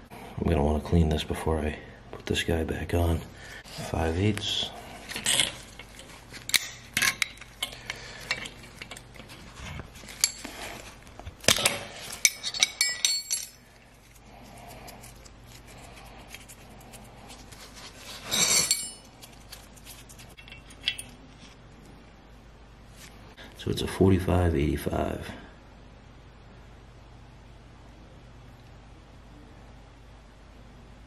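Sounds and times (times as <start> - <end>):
wrenches clinking on metal: 5.1 - 9.4, 10.0 - 10.7, 11.5 - 13.7, 18.2 - 19.1, 20.4 - 21.2.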